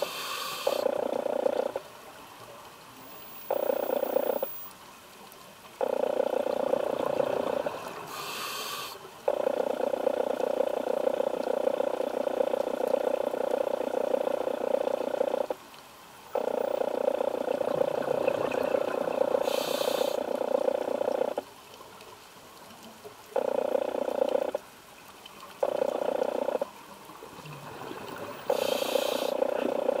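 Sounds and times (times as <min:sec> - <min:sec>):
quiet inhalations through regulator: 0:00.0 - 0:01.8, 0:03.0 - 0:04.7, 0:05.8 - 0:15.6, 0:16.4 - 0:21.4, 0:27.4 - 0:30.0.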